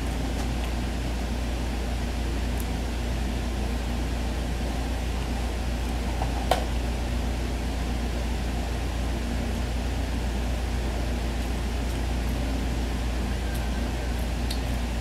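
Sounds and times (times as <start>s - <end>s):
fan hum and hiss: 0.0s - 15.0s.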